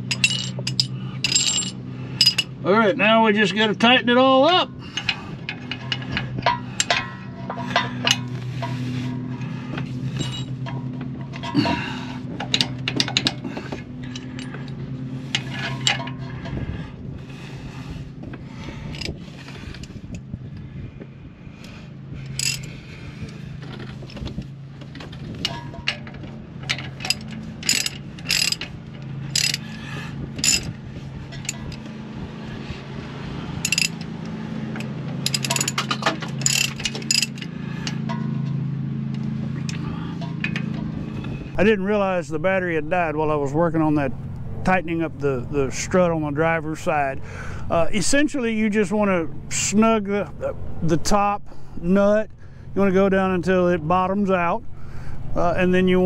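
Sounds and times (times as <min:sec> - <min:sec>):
lawn mower engine droning: 0:00.0 - 0:47.9
ratchet wrench clicking: 0:22.3 - 0:22.7, 0:25.4 - 0:30.8, 0:33.6 - 0:34.1, 0:35.2 - 0:38.0.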